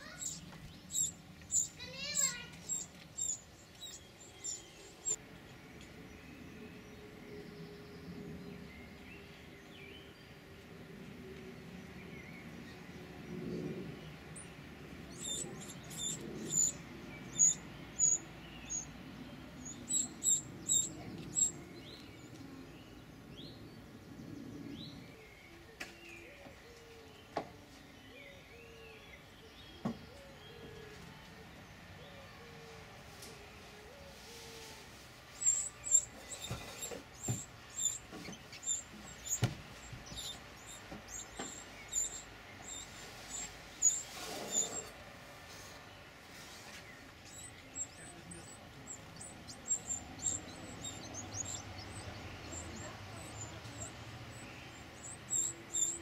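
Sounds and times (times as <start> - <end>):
nestlings begging squeaks: 0.0 - 5.2, 15.1 - 19.0, 19.6 - 21.6, 35.3 - 45.8, 47.1 - 56.0
wrens chirping: 0.0 - 10.4, 11.6 - 27.4, 28.1 - 56.0.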